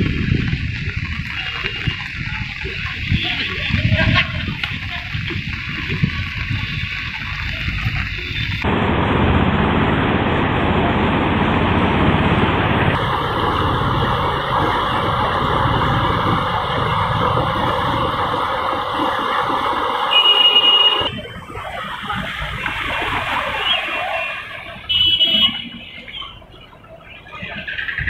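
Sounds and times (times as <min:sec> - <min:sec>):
floodwater rushing: 0:00.0 - 0:27.6
car driving through floodwater: 0:00.0 - 0:28.0.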